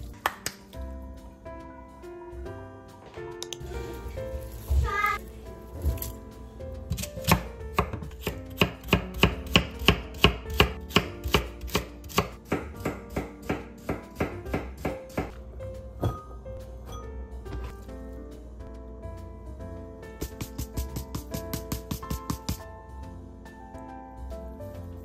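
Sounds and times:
knife chopping on wooden board: 0:06.9 - 0:15.3, 0:20.2 - 0:22.6.

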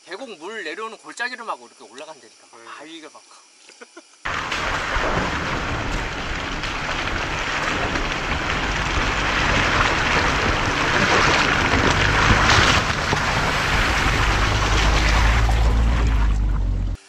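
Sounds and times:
car engine hum: 0:04.3 - 0:17.0
rushing noise: 0:04.3 - 0:17.0.

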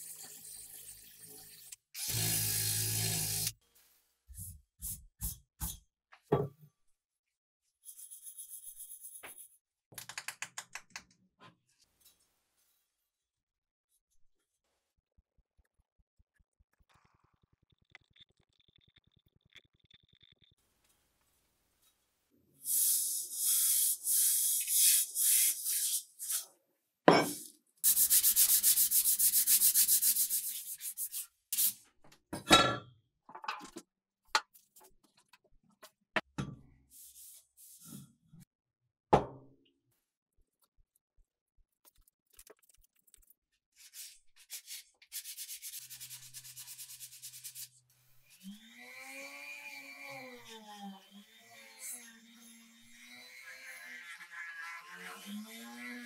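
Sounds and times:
sanding metal by hand: 0:27.8 - 0:31.2.

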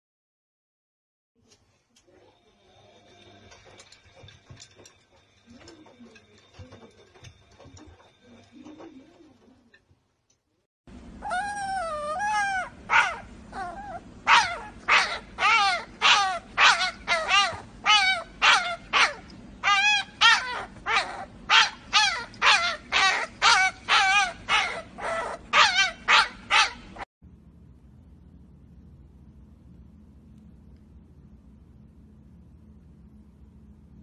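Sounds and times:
puppy whining: 0:11.2 - 0:27.0
puppy yipping: 0:11.2 - 0:27.0.

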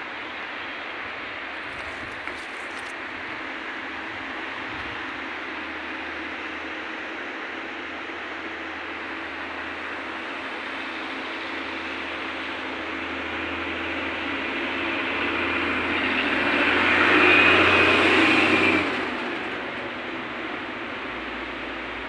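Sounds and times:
vehicle passing on road: 0:13.0 - 0:22.0.

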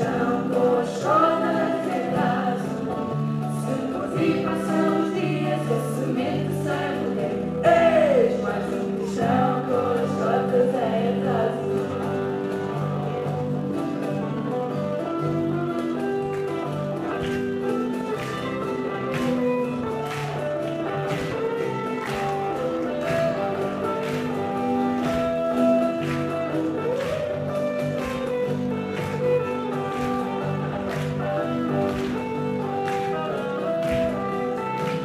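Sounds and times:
acoustic guitar: 0:00.0 - 0:35.0
cajon beat: 0:00.0 - 0:35.0.

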